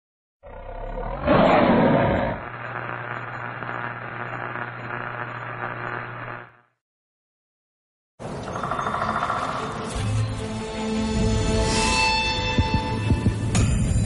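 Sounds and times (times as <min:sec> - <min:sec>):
big cat roar: 0:00.4 - 0:02.4
steady low hum: 0:02.4 - 0:06.7.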